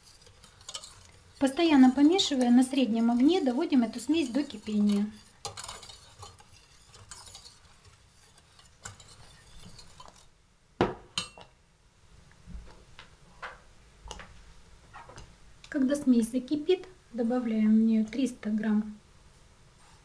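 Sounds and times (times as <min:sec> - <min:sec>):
spatula scraping saucepan: 0:00.0 - 0:10.3.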